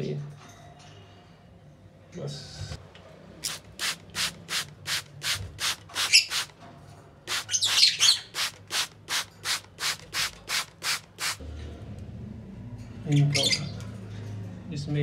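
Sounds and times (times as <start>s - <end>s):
spray bottle squirting water: 3.4s - 6.6s, 7.3s - 11.4s
cage birds chirping: 3.4s - 11.4s, 12.9s - 14.4s.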